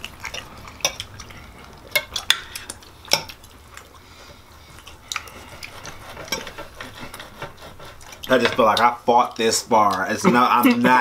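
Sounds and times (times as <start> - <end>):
knife and fork scraping plates: 5.3 - 8.9.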